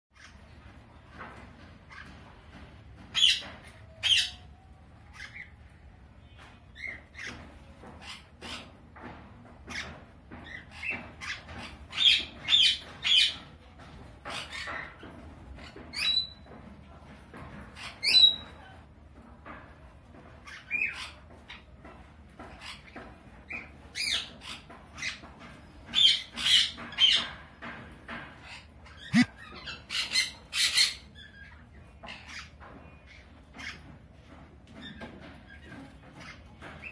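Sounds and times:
parrots squawking and chirping: 0:00.2 - 0:00.6, 0:01.8 - 0:05.8, 0:14.2 - 0:16.6, 0:22.4 - 0:33.9.

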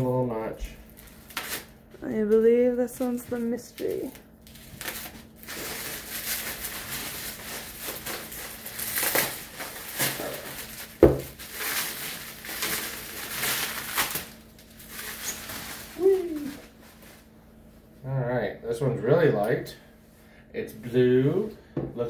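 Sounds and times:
bubble wrap crinkling: 0:00.8 - 0:17.4.

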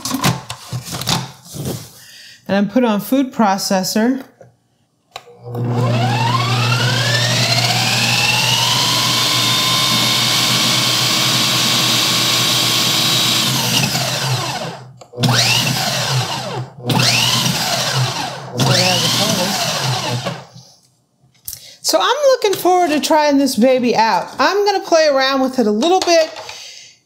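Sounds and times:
food processor motor whining: 0:05.2 - 0:20.7.

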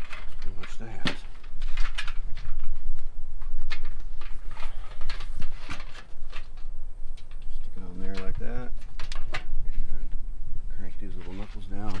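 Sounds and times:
steady low rumble: 0:00.2 - 0:12.0.

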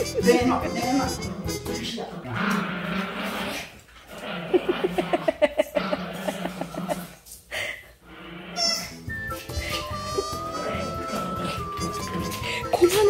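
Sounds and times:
puppy grumbling: 0:01.0 - 0:07.2, 0:09.7 - 0:12.8.

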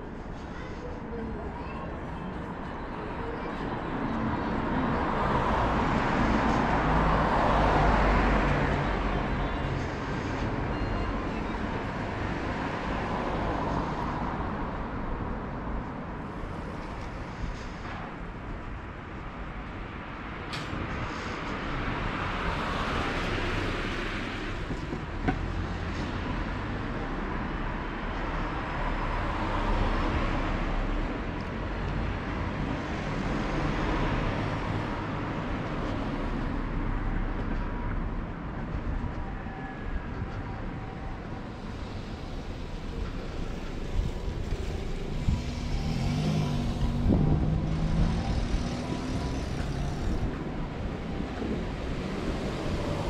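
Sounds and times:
passing traffic rumble: 0:00.0 - 0:53.0
passing vehicle hiss: 0:41.4 - 0:53.0.

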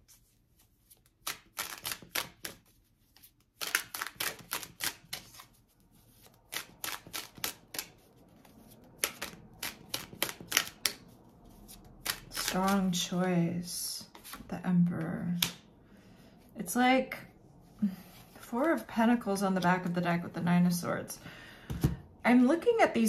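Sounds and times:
cards being shuffled: 0:00.0 - 0:13.0, 0:14.1 - 0:14.5.

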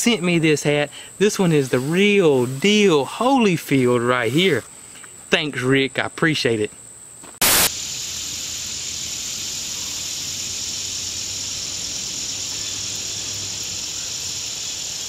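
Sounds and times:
insects chorus drone: 0:00.0 - 0:15.0
short loud noise burst: 0:07.4 - 0:07.8.

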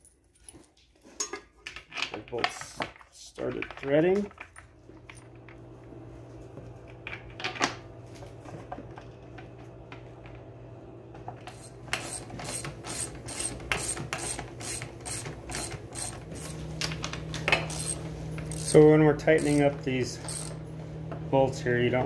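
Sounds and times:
ratchet clicking: 0:11.5 - 0:16.6, 0:17.7 - 0:20.6.

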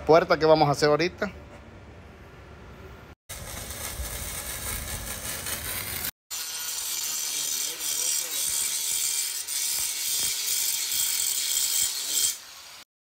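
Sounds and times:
angle grinder grinding steel: 0:03.3 - 0:12.8.

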